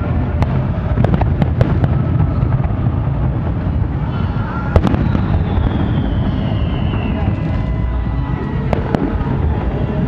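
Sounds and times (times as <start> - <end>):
distant fireworks bangs: 0.0 - 4.0, 4.7 - 7.8
low background rumble: 0.0 - 10.0
faint falling whistle: 4.1 - 9.0.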